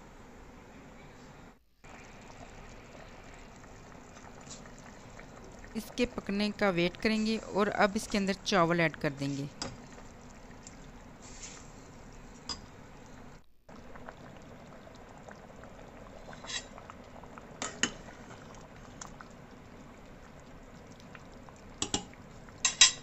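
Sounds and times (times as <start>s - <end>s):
rice bubbling in a pot: 1.8s - 23.0s
metal spoon clinking against pot: 21.8s - 23.0s.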